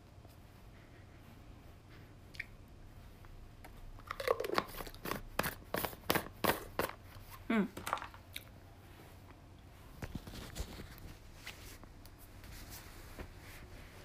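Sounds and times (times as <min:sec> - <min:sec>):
person humming: 0:07.5 - 0:07.8.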